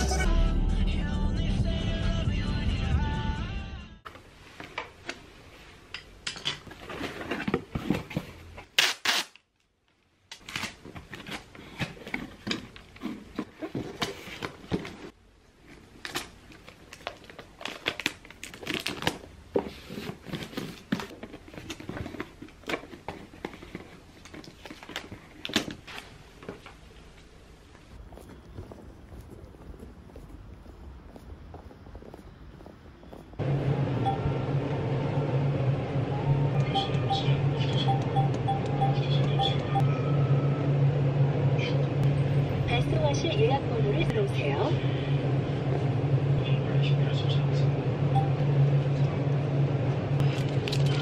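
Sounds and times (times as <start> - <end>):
packing tape ripping: 8.7 - 9.5, 16.0 - 19.2.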